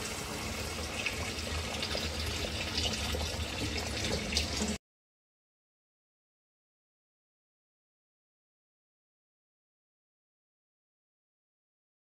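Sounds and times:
stew simmering with bubbling: 0:00.0 - 0:04.8.

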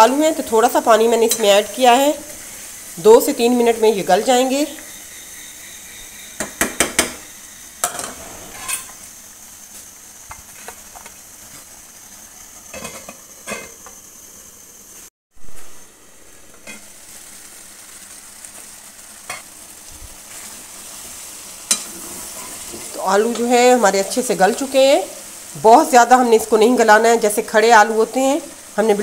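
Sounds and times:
curry sizzling in pot: 0:00.0 - 0:29.0.

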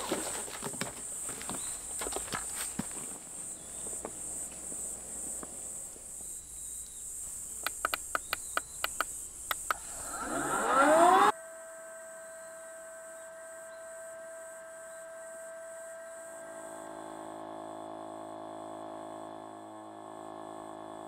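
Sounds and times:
crickets chirping: 0:00.0 - 0:18.4
button clicks: 0:07.6 - 0:09.8
air pump motor whining: 0:09.5 - 0:21.0.

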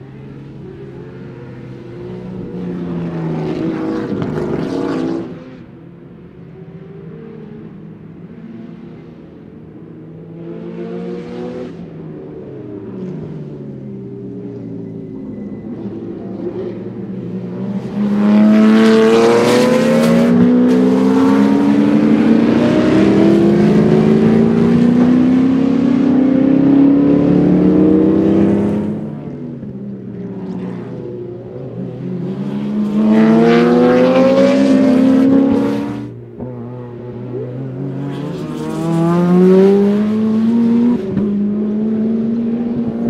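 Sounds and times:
racing engine accelerating: 0:15.3 - 0:29.7, 0:31.6 - 0:43.0.

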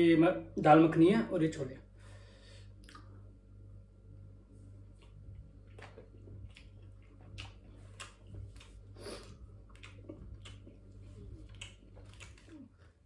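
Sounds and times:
low steady hum: 0:00.0 - 0:13.0
person chewing food: 0:02.7 - 0:03.2, 0:04.8 - 0:13.0.

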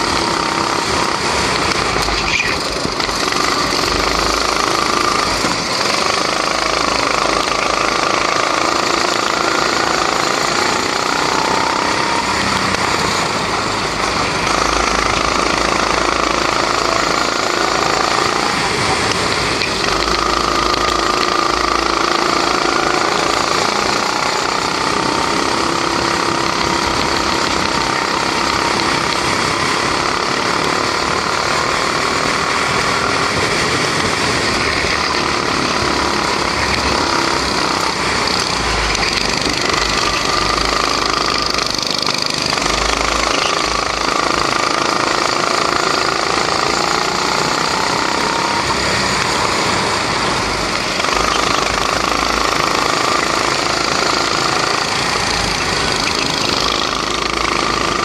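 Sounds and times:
go-kart engine running hard: 0:00.0 - 0:58.0.

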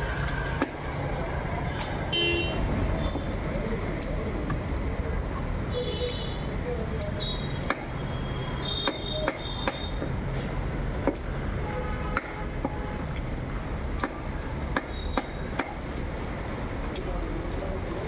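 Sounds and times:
knife chopping on wooden block: 0:08.8 - 0:09.9, 0:12.1 - 0:12.8.

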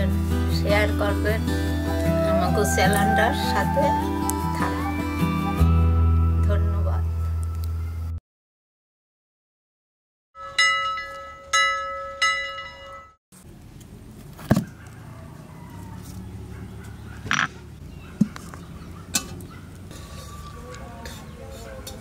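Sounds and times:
outdoor background: 0:00.0 - 0:08.2, 0:10.4 - 0:22.0
ringing chime notes: 0:10.4 - 0:13.2.

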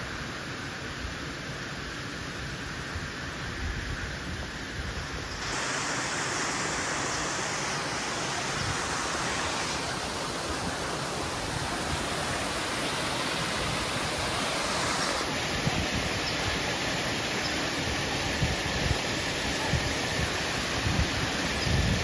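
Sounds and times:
flowing water rushing: 0:04.4 - 0:22.0.

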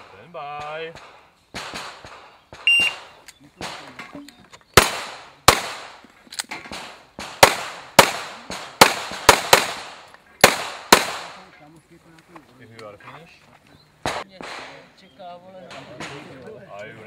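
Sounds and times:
shot timer beep: 0:02.7 - 0:03.0.

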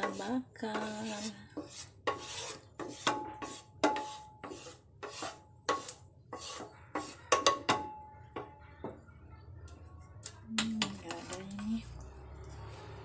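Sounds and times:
wooden spatula scraping grill pan: 0:00.0 - 0:07.7.

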